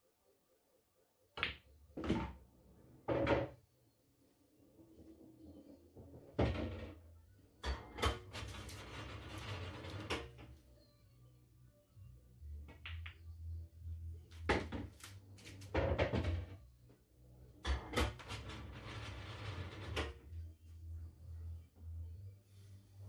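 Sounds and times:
pool ball rolling rumble: 0:08.0 - 0:10.4, 0:18.0 - 0:20.4
ball dropping into pocket: 0:12.7 - 0:13.2
pool balls knocking: 0:12.7 - 0:13.2.

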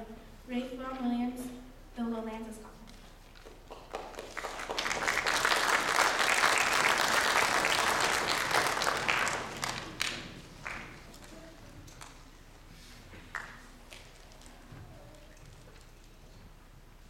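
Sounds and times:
audience applauding: 0:03.6 - 0:12.1.

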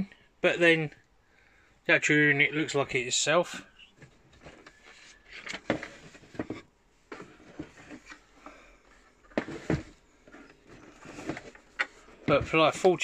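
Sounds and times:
paper and cardboard rustling: 0:08.9 - 0:13.0.

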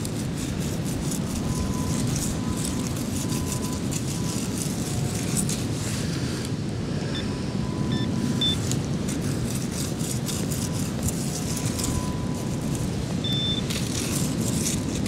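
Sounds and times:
pinpointer short high beeps: 0:07.1 - 0:08.6, 0:13.2 - 0:13.7.

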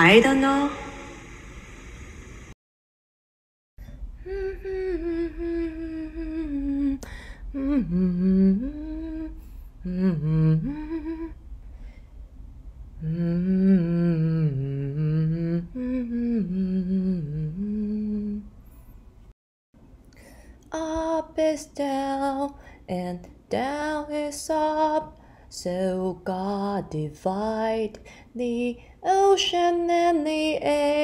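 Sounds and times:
person humming a melody: 0:04.2 - 0:11.4, 0:13.0 - 0:18.5.

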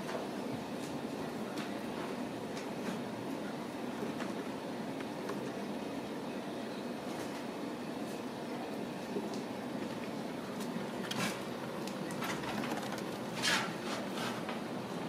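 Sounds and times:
kittens scratching and scuffling: 0:10.6 - 0:14.6.

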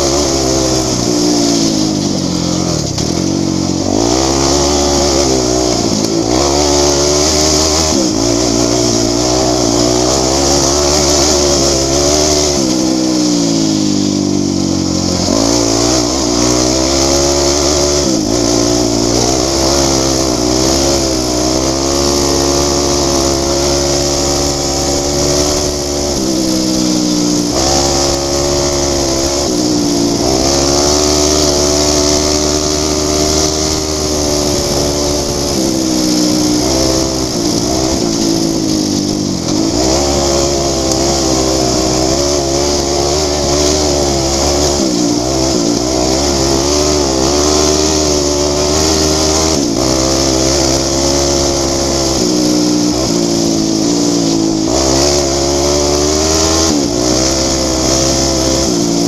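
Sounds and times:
racing engine revving: 0:00.0 - 0:59.0.

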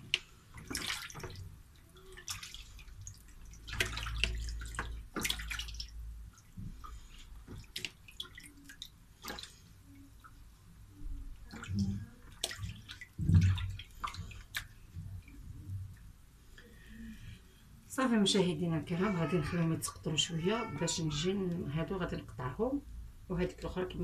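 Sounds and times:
water sloshing in basin: 0:00.0 - 0:16.2.

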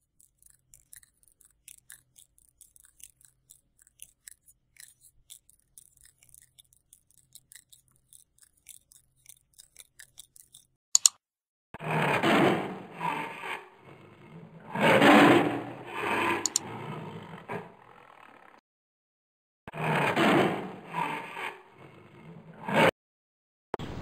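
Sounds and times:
faint ticking and clicking: 0:00.0 - 0:11.1, 0:16.4 - 0:16.6
sharp double click: 0:11.0 - 0:11.2
loud scraping: 0:11.8 - 0:18.6, 0:19.7 - 0:22.9.

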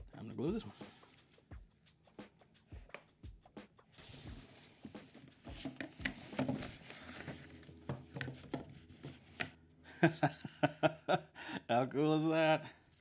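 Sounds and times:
plastic pipes clacking and knocking: 0:05.5 - 0:09.5.

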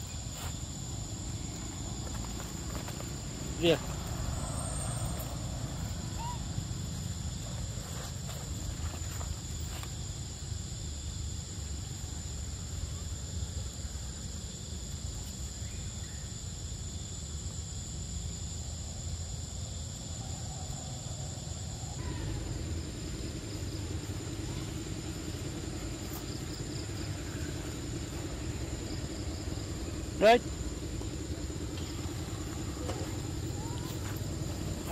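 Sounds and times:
high-pitched insect drone: 0:00.0 - 0:34.9
low pulsing hum: 0:20.3 - 0:34.9.

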